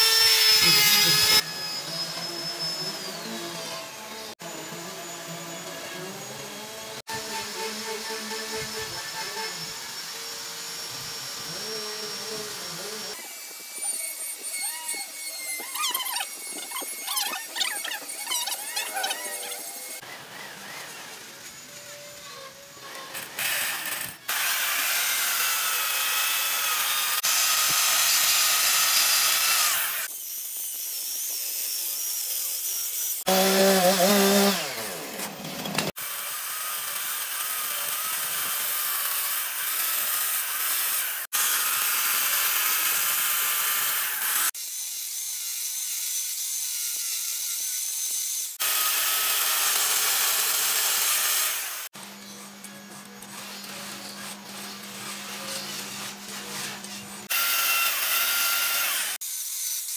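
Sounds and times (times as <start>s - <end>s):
chainsaw cutting wood: 0.0s - 3.4s, 23.4s - 30.1s, 33.2s - 44.6s, 48.6s - 52.0s, 53.6s - 59.3s.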